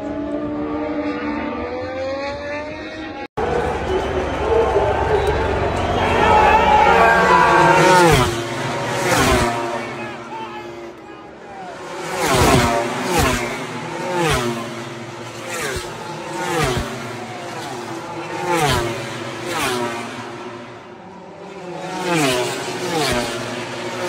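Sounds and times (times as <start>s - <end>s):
race bike engines revving: 0.0s - 24.0s.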